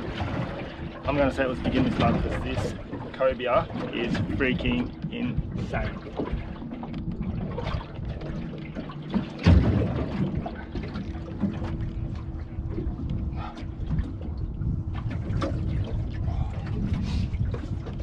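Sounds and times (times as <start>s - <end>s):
low hum: 0.0s - 18.0s
water sloshing and trickling: 0.0s - 18.0s
knocks on boat deck: 9.1s - 11.7s.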